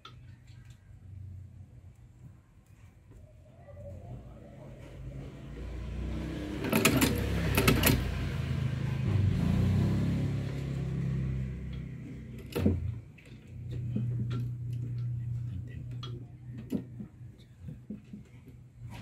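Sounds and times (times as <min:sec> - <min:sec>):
sewing machine hum: 0:05.9 - 0:11.6
needle mechanism clattering: 0:06.6 - 0:08.2.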